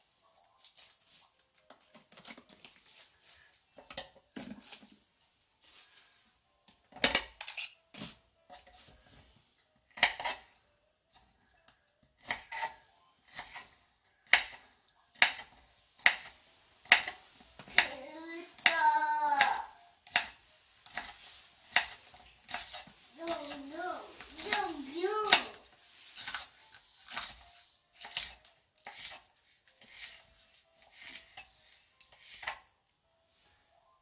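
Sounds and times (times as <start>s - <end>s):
knife chopping on wooden board: 9.9s - 10.4s, 12.2s - 13.7s, 14.3s - 17.9s, 19.4s - 23.5s
child's voice: 17.8s - 19.8s, 23.2s - 25.6s.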